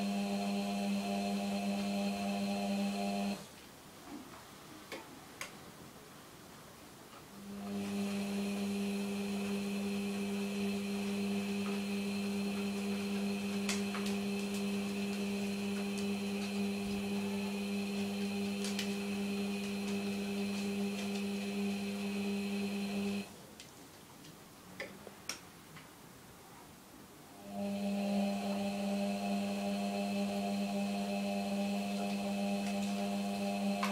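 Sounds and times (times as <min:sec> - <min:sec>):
high motor whine: 0:00.0 - 0:03.4, 0:07.4 - 0:23.3, 0:27.4 - 0:33.9
washing machine motor humming: 0:00.0 - 0:03.4, 0:07.4 - 0:23.3, 0:27.4 - 0:33.9.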